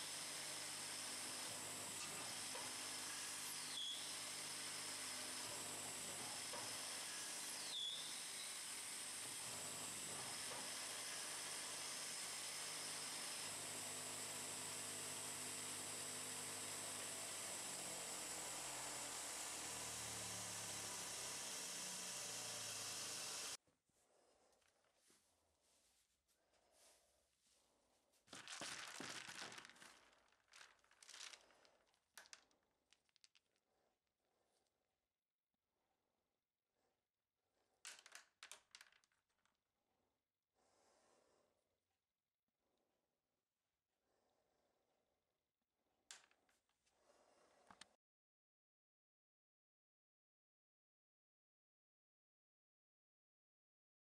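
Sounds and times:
hiss of wood cutting: 0:00.0 - 0:23.6
lathe motor hum: 0:00.1 - 0:23.6.

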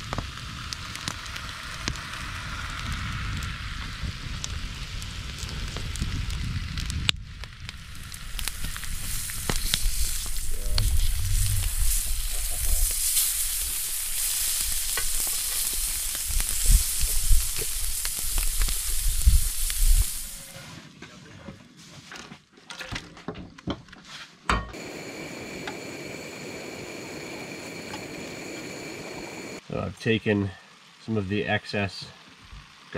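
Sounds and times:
fish sizzling in oil: 0:00.0 - 0:20.6.

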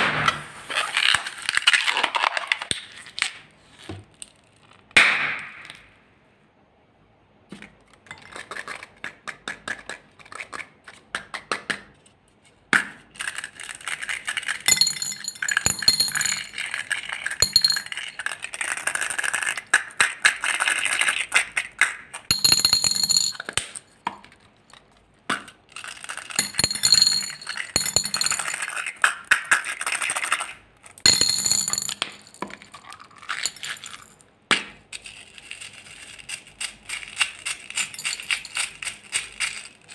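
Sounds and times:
beads clinking in glass bowl: 0:13.4 - 0:19.2, 0:22.3 - 0:23.8, 0:25.8 - 0:34.2, 0:35.4 - 0:39.7.

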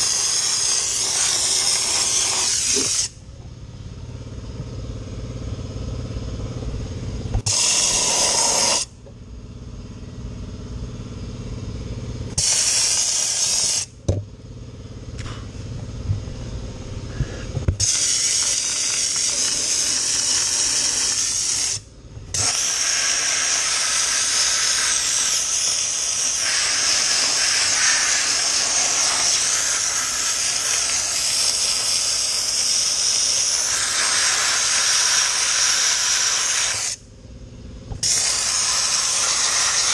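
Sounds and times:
dry ice blaster spraying: 0:00.0 - 0:03.2, 0:07.4 - 0:09.0, 0:12.3 - 0:14.0, 0:17.2 - 0:37.0, 0:38.0 - 0:39.9
steady low hum: 0:00.0 - 0:39.9.

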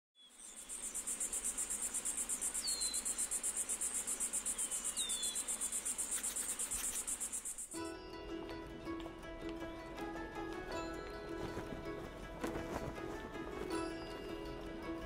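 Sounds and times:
crickets chirping: 0:00.2 - 0:07.8.

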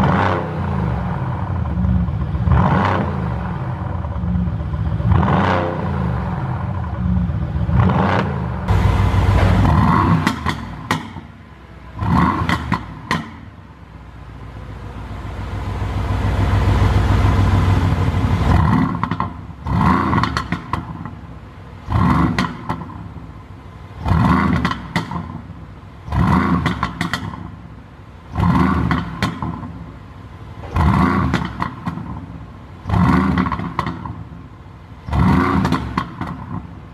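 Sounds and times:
car engine revving: 0:00.0 - 0:21.2, 0:21.8 - 0:23.2, 0:23.9 - 0:27.6, 0:28.3 - 0:29.8, 0:30.6 - 0:34.2, 0:35.0 - 0:36.7
exhaust crackles and pops: 0:08.7 - 0:11.3, 0:18.5 - 0:21.2, 0:24.0 - 0:25.4, 0:32.9 - 0:34.2, 0:35.1 - 0:36.8.

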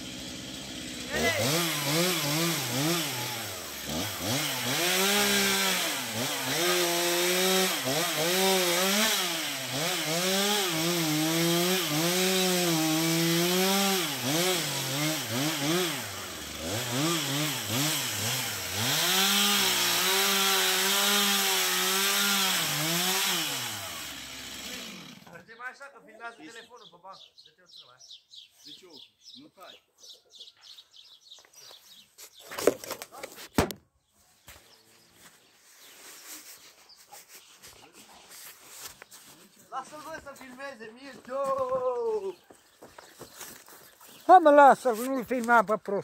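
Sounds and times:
chainsaw cutting wood: 0:00.0 - 0:25.4.

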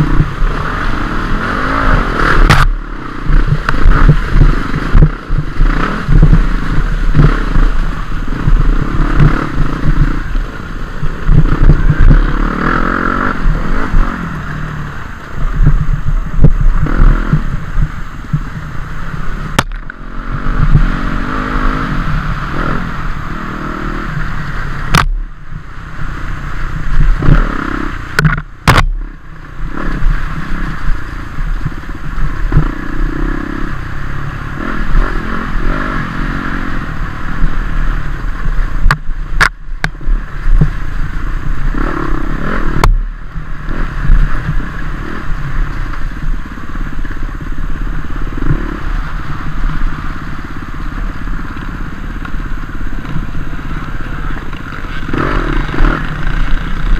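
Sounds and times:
dirt bike engine revving: 0:00.0 - 0:25.1, 0:26.5 - 0:38.8, 0:40.2 - 0:56.9
sharp knocks: 0:19.6 - 0:19.9, 0:28.2 - 0:29.0
bike clattering and scraping: 0:48.3 - 0:56.9.

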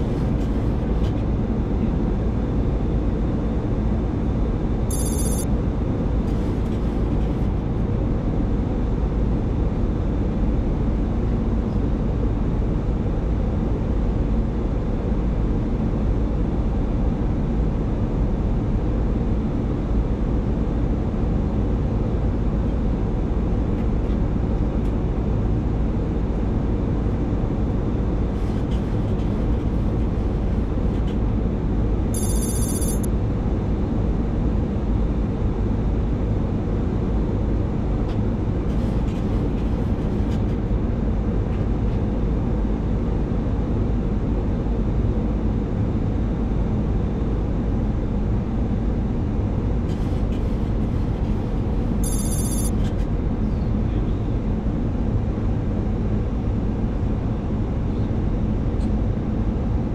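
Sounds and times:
aircraft engines and air rumble: 0:00.0 - 0:59.9
high-pitched electronic tone: 0:04.9 - 0:05.4, 0:32.2 - 0:33.1, 0:52.0 - 0:52.7.

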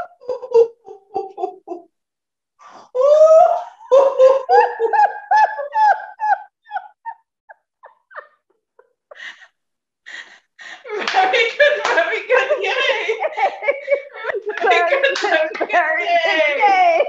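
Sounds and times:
women laughing through pinched noses: 0:03.9 - 0:10.4.

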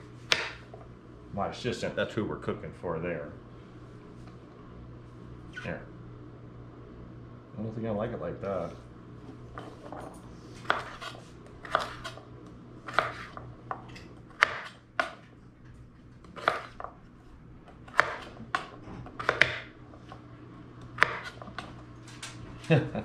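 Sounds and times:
low steady hum: 0:00.0 - 0:23.0
knife chopping on wooden board: 0:00.3 - 0:00.7, 0:10.6 - 0:12.2, 0:12.9 - 0:15.3, 0:16.3 - 0:16.9, 0:17.8 - 0:19.7, 0:21.0 - 0:21.7.

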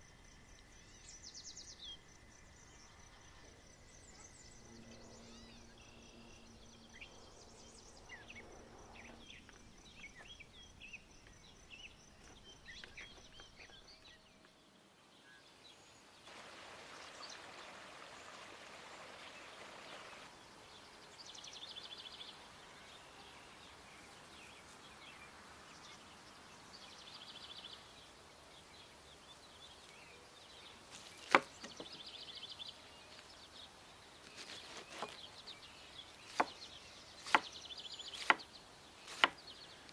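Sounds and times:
low hiss: 0:00.0 - 0:34.3
birds chirping: 0:00.7 - 0:39.9.

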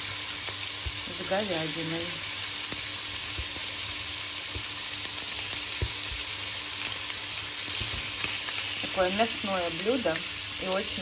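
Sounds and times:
meat sizzling in oil: 0:00.0 - 0:11.0.

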